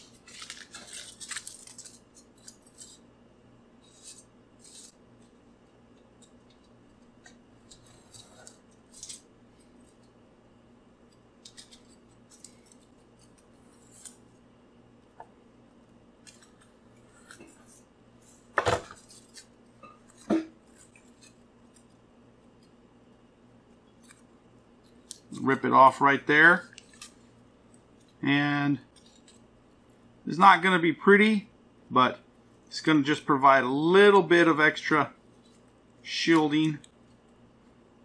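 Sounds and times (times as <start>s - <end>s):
foil crackles: 0.0s - 2.9s
foil crinkling and scraping: 0.0s - 3.0s.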